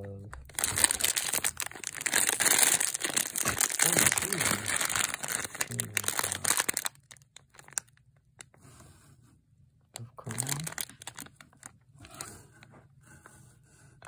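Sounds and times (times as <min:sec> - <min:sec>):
foil wrapper crinkling: 0:00.5 - 0:08.0, 0:10.2 - 0:11.7.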